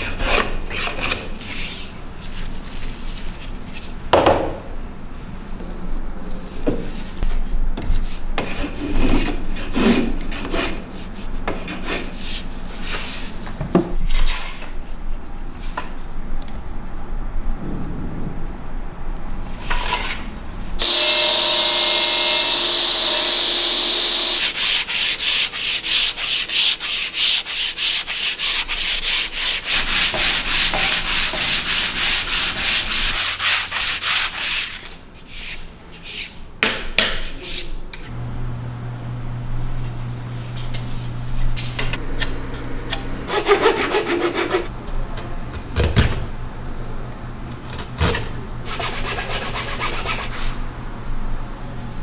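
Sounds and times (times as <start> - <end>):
steady low hum: 14.9 - 24.9, 37.8 - 52.0.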